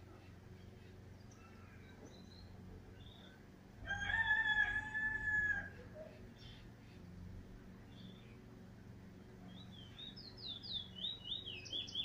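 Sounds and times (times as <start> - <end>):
songbird chirps: 0.0 - 12.0
rooster crowing: 3.8 - 5.9.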